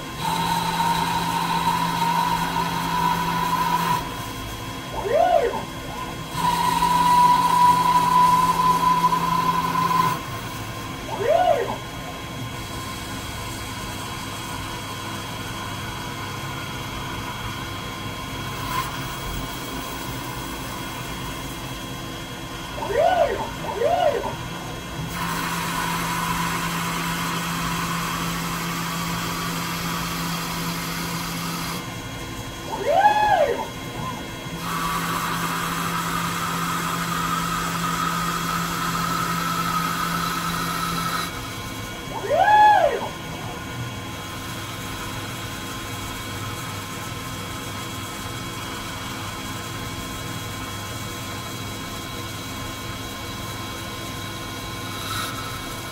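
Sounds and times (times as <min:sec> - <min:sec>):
lathe machine hum: 0:00.0 - 0:55.9
tool cutting plastic with hiss: 0:54.8 - 0:55.9.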